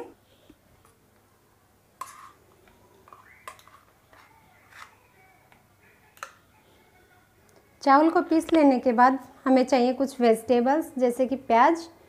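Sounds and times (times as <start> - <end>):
batter scraping: 2.0 - 2.4.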